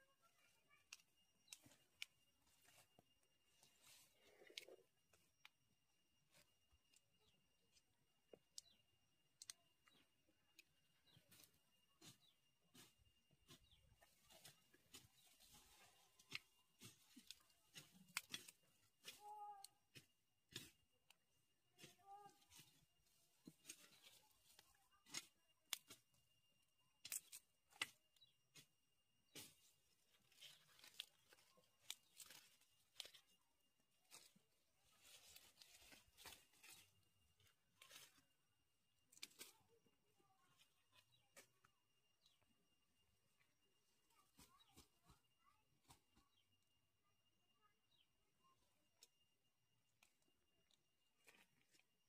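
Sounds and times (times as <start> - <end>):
soil crumbling and roots snapping: 0.2 - 46.5, 48.8 - 52.0
ginger roots snapping: 16.3 - 19.2, 27.0 - 28.2, 29.3 - 33.4.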